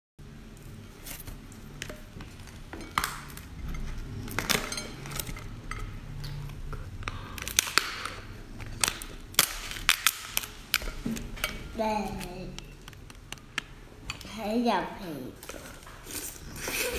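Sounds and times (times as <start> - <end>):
lobster shell cracking: 6.4 - 10.9.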